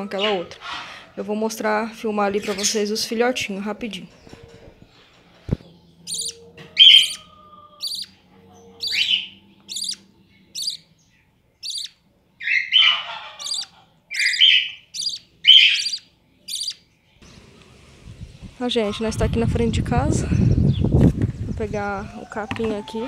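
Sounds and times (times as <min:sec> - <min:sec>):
birds chirping: 0:00.0 - 0:23.0
raspy bird calls: 0:04.2 - 0:16.9.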